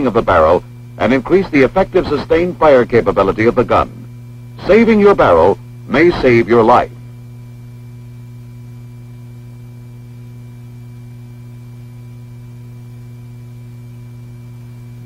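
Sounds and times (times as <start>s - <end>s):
faint high steady tones: 0.0s - 7.1s
low electrical hum: 0.0s - 15.0s.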